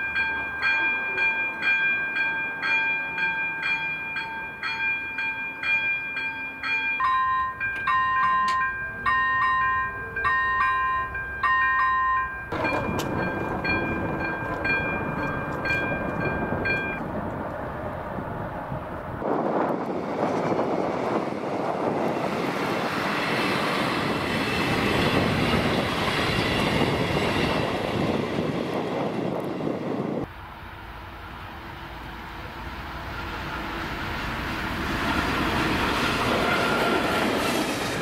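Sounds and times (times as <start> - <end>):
two-tone bell: 0.0 - 17.0
level crossing warning bells ringing: 0.0 - 17.1.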